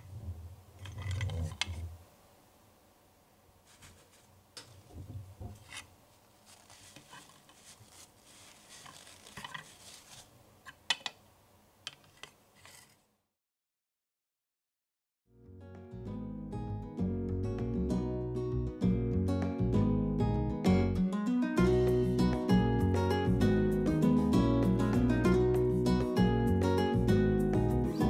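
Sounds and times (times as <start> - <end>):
paper tissue rustling: 3.6 - 4.8, 5.6 - 10.4
plucked acoustic guitar: 15.7 - 28.0.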